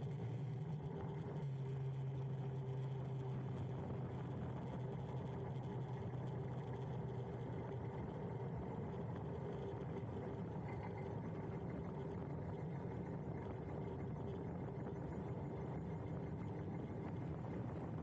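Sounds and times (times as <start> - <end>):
low steady hum: 0.0 - 18.0
road and wind noise: 1.7 - 13.8, 15.8 - 18.0.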